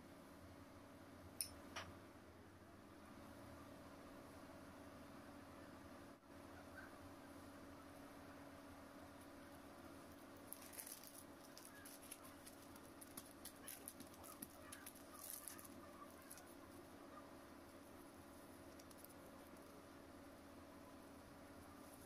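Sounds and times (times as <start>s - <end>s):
low steady hum: 0.0s - 22.0s
plastic crinkling and rustling: 10.1s - 16.9s, 17.7s - 19.8s.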